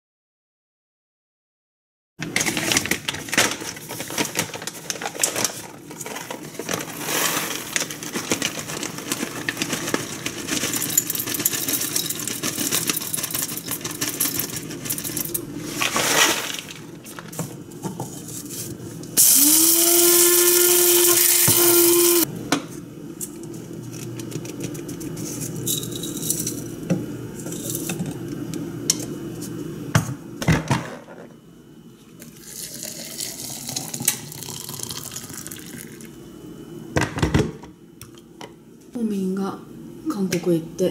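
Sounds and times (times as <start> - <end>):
coffee grinder motor whining: 19.2 - 22.3.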